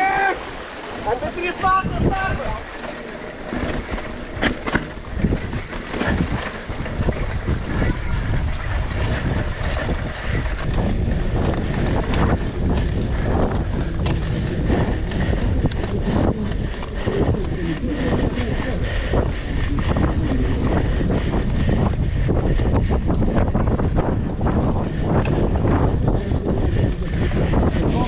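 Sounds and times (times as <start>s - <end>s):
wind buffeting microphone: 0.0s - 28.0s
low rumble: 1.9s - 28.0s
bike knocks and rattles: 2.7s - 17.6s.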